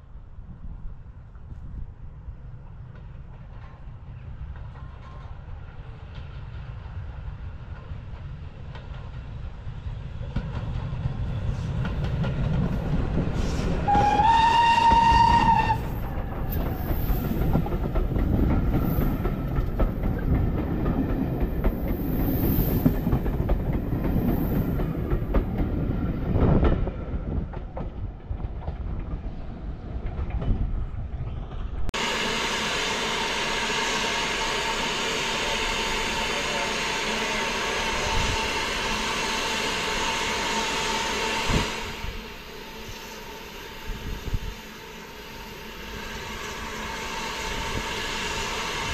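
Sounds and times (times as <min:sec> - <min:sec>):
train wheels rumbling on rail: 0:00.0 - 0:48.9
hiss of escaping steam: 0:13.2 - 0:15.3, 0:16.5 - 0:17.8, 0:22.0 - 0:23.1
steam locomotive whistle: 0:13.4 - 0:16.1, 0:32.0 - 0:48.9.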